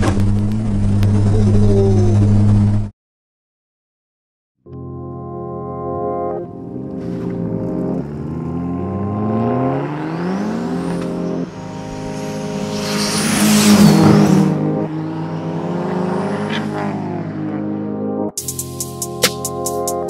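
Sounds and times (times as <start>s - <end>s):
car engine accelerating: 0.0s - 2.9s, 6.5s - 18.3s
car passing close: 7.0s - 17.8s.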